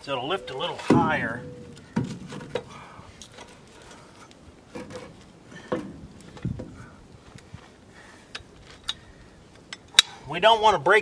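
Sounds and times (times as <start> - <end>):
knocks and scrapes of wood and steel: 0.5 - 7.8.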